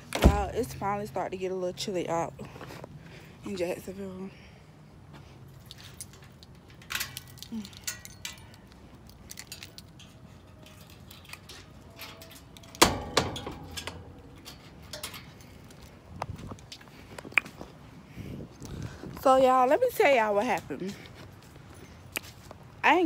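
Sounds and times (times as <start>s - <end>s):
light clicks and rattles: 5.5s - 17.6s.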